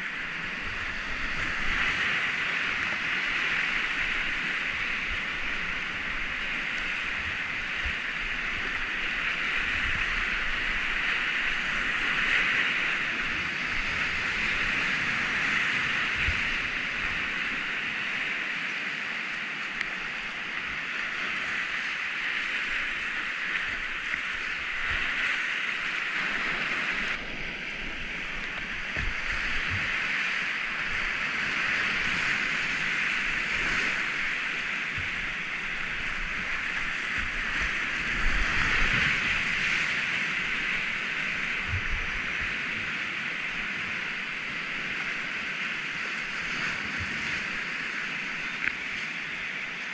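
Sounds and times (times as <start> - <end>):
rush of river rapids: 0.0 - 49.9.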